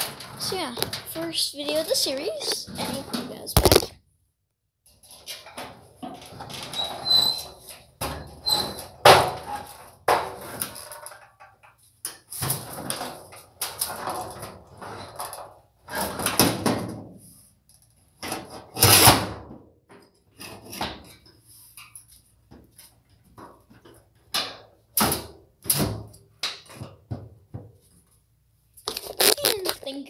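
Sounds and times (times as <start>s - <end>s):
scraping or rustling: 28.8s - 30.0s.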